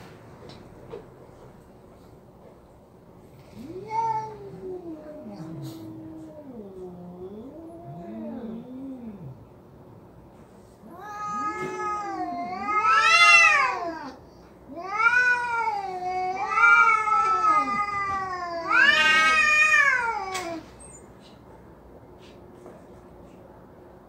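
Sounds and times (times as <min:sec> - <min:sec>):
cats yowling: 0:03.5 - 0:09.4, 0:10.9 - 0:20.7.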